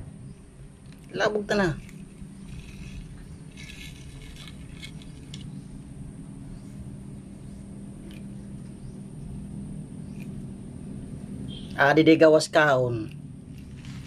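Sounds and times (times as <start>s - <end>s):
steady low hum: 0.0s - 14.0s
scrapes and rustles on gravel: 1.7s - 5.6s, 13.6s - 14.0s.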